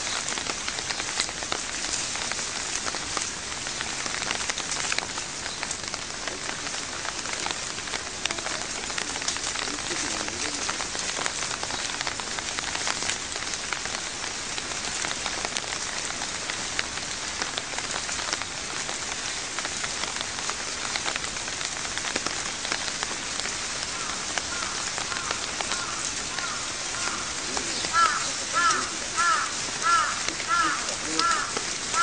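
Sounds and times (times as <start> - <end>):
rain falling: 0.0 - 32.0
raindrops ticking on surfaces: 0.0 - 32.0.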